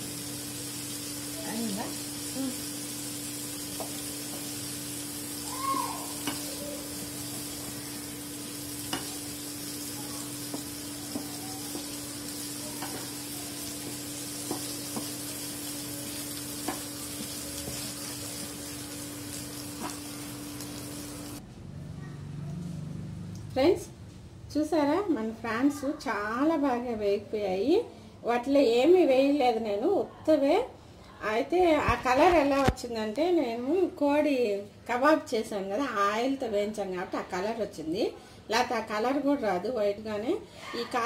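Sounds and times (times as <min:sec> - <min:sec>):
prawns sizzling in oil: 0:00.0 - 0:21.4
spatula scraping and tapping pan: 0:06.2 - 0:06.5, 0:12.8 - 0:13.2, 0:13.8 - 0:15.2.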